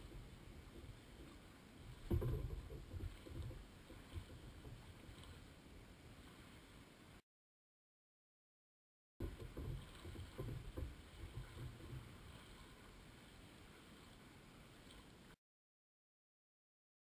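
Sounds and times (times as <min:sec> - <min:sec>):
choppy water lapping: 0:00.0 - 0:07.2, 0:09.2 - 0:15.4.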